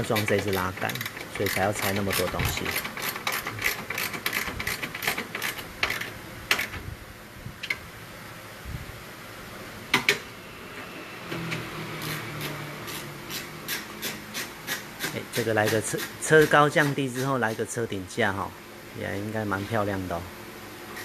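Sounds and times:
ratchet wrench clicking: 0.1 - 6.7.

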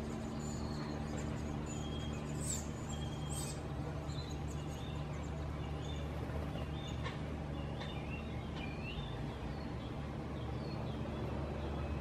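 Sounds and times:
faint bird chirps: 0.0 - 12.0
low mechanical hum: 0.0 - 12.0
short whistled calls: 1.6 - 3.6.

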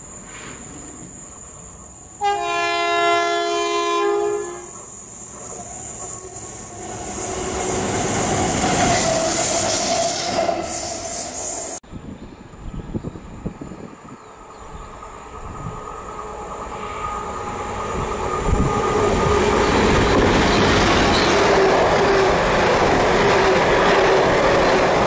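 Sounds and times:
two-note locomotive horn: 2.2 - 4.7.

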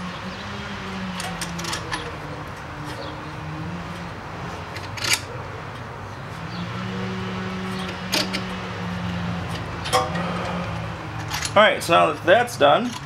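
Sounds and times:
low hum: 9.3 - 11.6.

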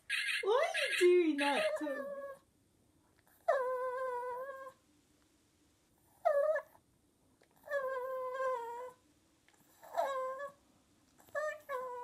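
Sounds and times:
dog whining: 0.1 - 2.4, 3.3 - 4.8, 6.1 - 6.8, 7.6 - 9.0, 9.6 - 10.6, 11.2 - 12.0.

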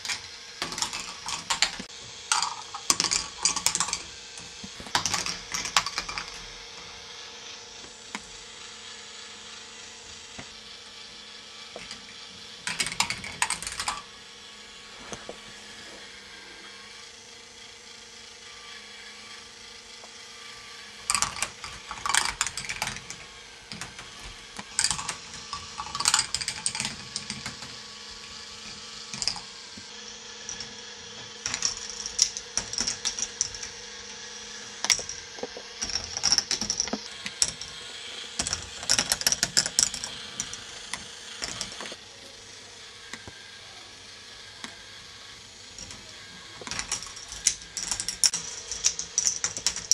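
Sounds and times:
plastic balls clicking and clattering: 0.0 - 6.5, 12.6 - 14.1, 21.1 - 29.5, 30.5 - 30.8, 31.4 - 33.8, 34.8 - 42.0, 46.6 - 49.9
motor hum: 0.0 - 49.9.

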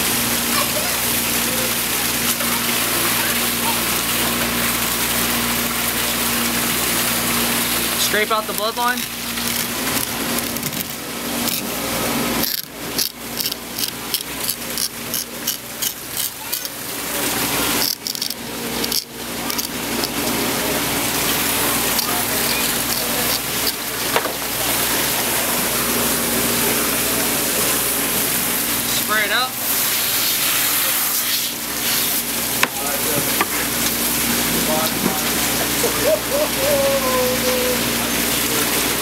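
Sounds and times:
knife scraping fish: 12.4 - 16.7.

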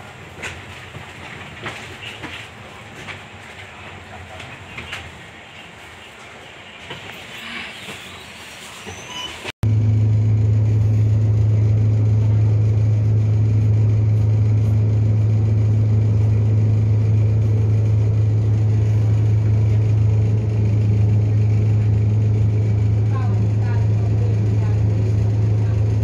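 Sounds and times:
bus engine idling drone: 9.6 - 26.0.

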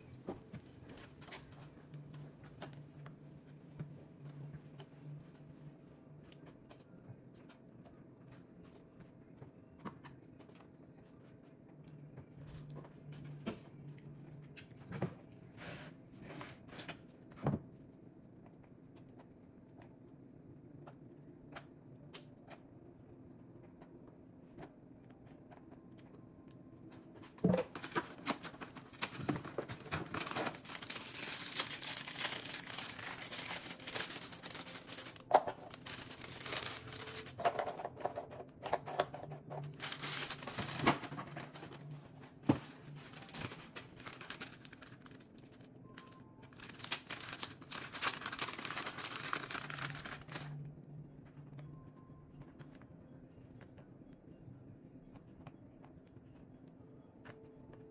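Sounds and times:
plastic bag crinkling: 27.7 - 38.1, 38.9 - 41.8, 42.9 - 50.5.

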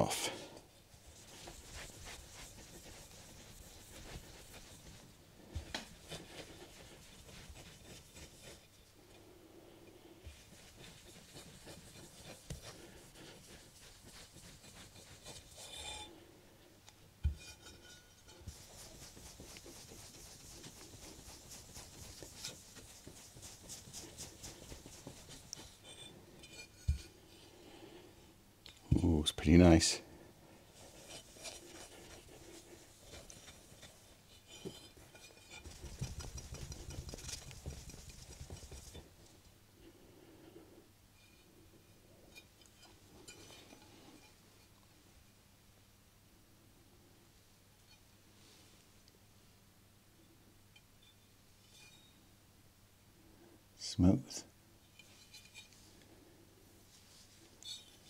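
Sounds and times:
cloth rubbing metal: 0.0 - 8.9, 10.1 - 16.3, 17.3 - 27.4, 30.7 - 39.3, 51.6 - 52.2, 54.9 - 58.0.

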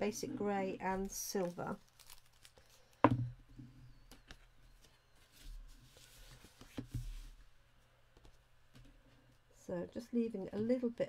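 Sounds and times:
paper sliding and rustling: 5.1 - 7.4.

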